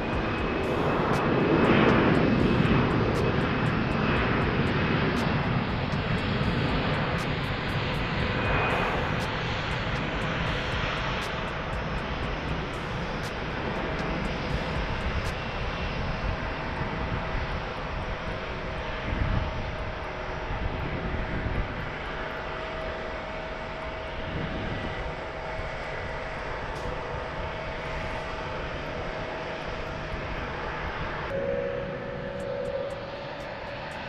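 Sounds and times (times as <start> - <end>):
high engine whine: 0.0 - 34.0
jet engines roaring: 0.0 - 34.0.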